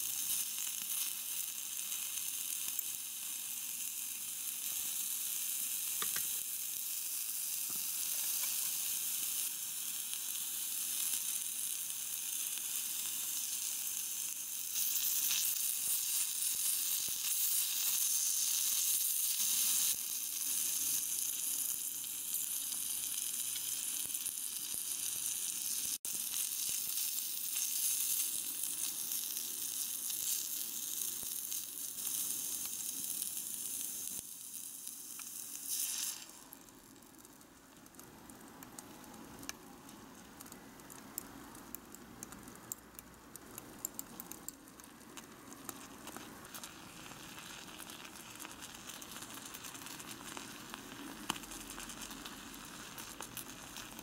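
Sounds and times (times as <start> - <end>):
food sizzling in a saucepan: 0.0 - 37.5, 45.2 - 54.0.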